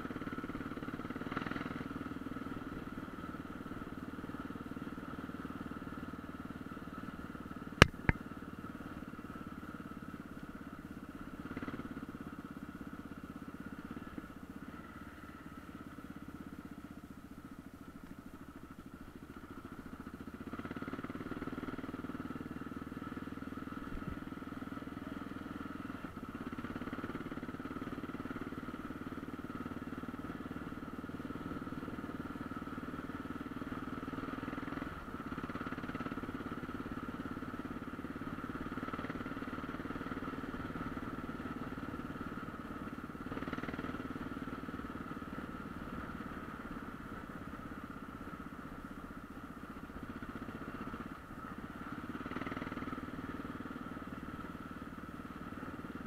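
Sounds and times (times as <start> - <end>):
motorcycle engine running: 0.0 - 56.0
short knock: 7.8 - 8.2.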